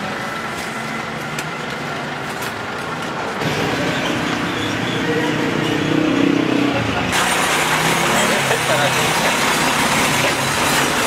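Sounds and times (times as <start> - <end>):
street traffic: 0.0 - 11.0
vehicle engine running: 0.0 - 11.0
people's voices: 7.9 - 10.4.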